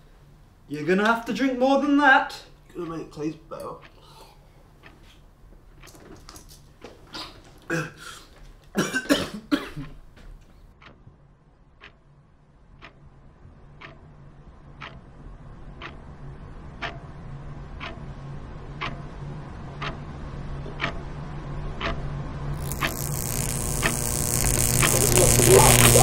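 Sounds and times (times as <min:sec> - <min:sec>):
clock ticking: 0:02.8 - 0:04.0, 0:11.8 - 0:12.0, 0:12.8 - 0:13.0, 0:13.8 - 0:14.1, 0:14.7 - 0:15.1, 0:15.7 - 0:16.1, 0:16.7 - 0:17.1, 0:17.8 - 0:19.1, 0:19.7 - 0:20.1, 0:20.8 - 0:21.1, 0:21.8 - 0:22.0, 0:22.6 - 0:26.0
low hum: 0:22.2 - 0:26.0.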